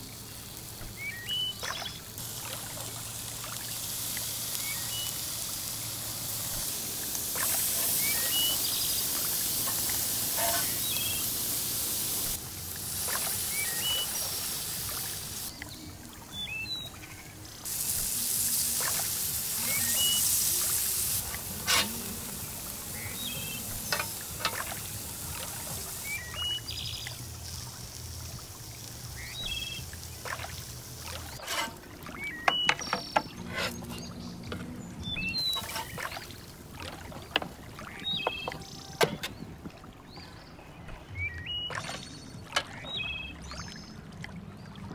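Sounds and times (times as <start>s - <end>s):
patties sizzling on a grill: 0.0s - 15.5s, 17.6s - 31.8s, 35.1s - 36.7s
bird chirps: 1.0s - 2.0s, 4.6s - 5.2s, 7.4s - 9.2s, 13.4s - 14.3s, 26.0s - 27.1s, 32.1s - 36.0s
metal spatula scraping grate: 9.6s - 11.2s, 21.5s - 22.1s, 31.4s - 31.8s, 32.5s - 34.6s, 35.5s - 36.0s.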